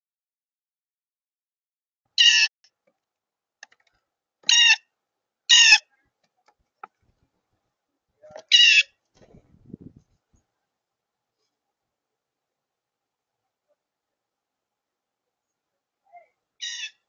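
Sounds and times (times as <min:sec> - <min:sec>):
blue jay harsh calls: 0:02.2 - 0:02.5, 0:04.4 - 0:04.8, 0:05.5 - 0:05.8, 0:08.5 - 0:08.9, 0:16.6 - 0:17.0.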